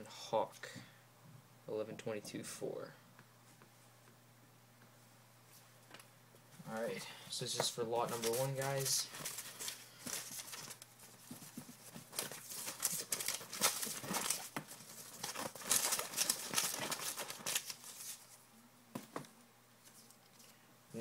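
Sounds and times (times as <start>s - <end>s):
paper slips rustling: 7.9s - 18.4s.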